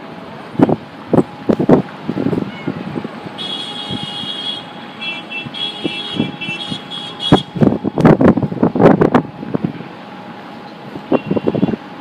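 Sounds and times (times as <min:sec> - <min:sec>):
wind gusts on microphone: 0:00.4 - 0:04.3, 0:05.2 - 0:10.0
blizzard wind rushing: 0:05.4 - 0:12.0.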